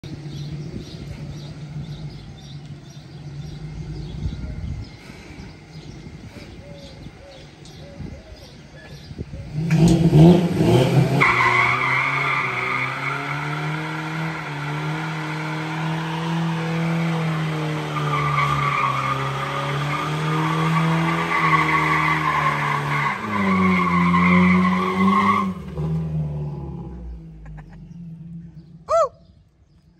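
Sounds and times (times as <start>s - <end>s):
engine revving high: 9.4s - 28.7s
tires squealing on pavement: 9.6s - 26.2s.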